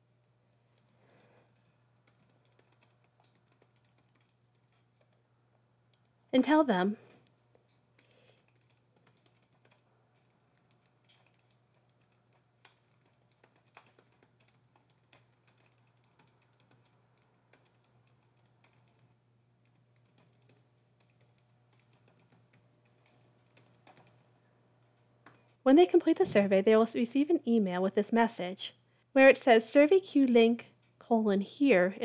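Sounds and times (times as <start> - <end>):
low background hum: 0.0 - 32.0
computer keyboard typing: 2.0 - 5.2, 8.0 - 24.3.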